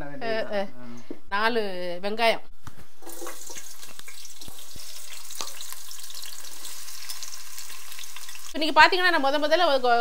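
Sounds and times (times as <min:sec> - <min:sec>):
onions sizzling in oil: 0:03.0 - 0:08.8.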